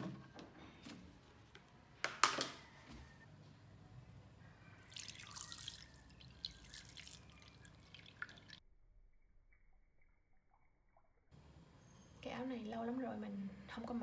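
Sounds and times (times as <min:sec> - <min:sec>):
liquid trickling: 0:04.8 - 0:08.6
liquid pouring and dripping: 0:04.8 - 0:11.3.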